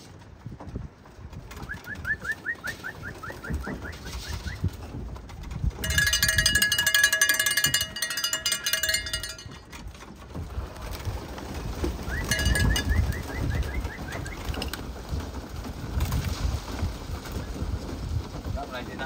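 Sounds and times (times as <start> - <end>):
pigeons: 0.0 - 5.7, 10.3 - 19.0
loud metallic rattle: 5.8 - 9.7, 12.3 - 13.0.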